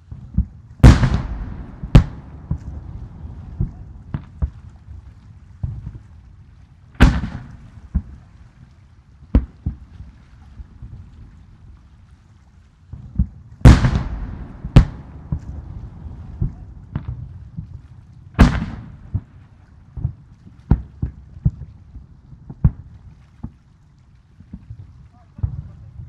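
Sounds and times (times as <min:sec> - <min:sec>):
firework booms with rolling rumble: 0:00.1 - 0:06.1, 0:07.0 - 0:08.3, 0:12.9 - 0:22.9
sharp small firework bangs: 0:00.8 - 0:02.8, 0:13.6 - 0:15.6.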